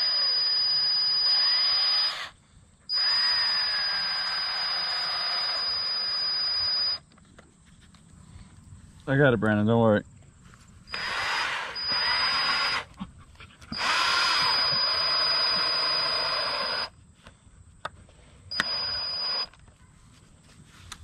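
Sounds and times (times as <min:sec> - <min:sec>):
cordless drill driving screw into wood: 0:00.0 - 0:07.0, 0:10.9 - 0:12.9, 0:13.7 - 0:16.9, 0:18.5 - 0:19.5.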